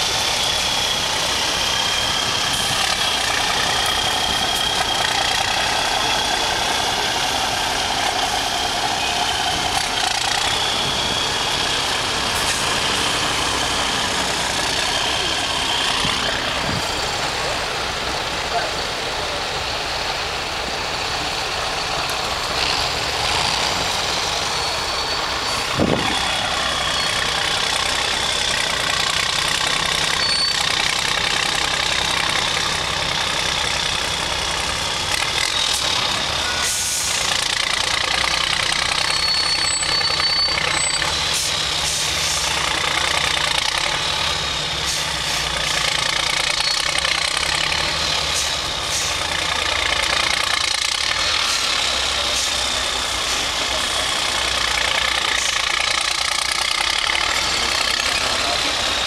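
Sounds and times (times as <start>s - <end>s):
diesel truck engine running: 0.0s - 59.0s
high whistle: 8.1s - 14.1s, 24.2s - 28.1s, 30.1s - 30.9s, 39.0s - 42.1s.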